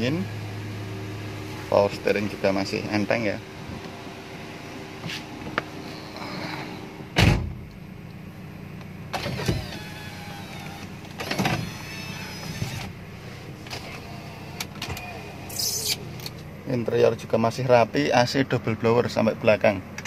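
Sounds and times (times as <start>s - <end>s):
car engine idling: 0.0s - 20.0s
whirring and rubbing noises: 5.0s - 7.0s, 9.2s - 16.3s
loud thump: 7.2s - 7.6s.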